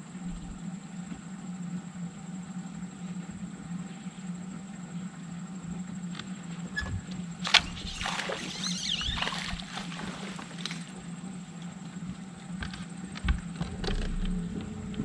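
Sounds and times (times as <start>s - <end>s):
steady low motor hum: 0.0s - 15.0s
fish splashing at surface: 7.5s - 10.9s.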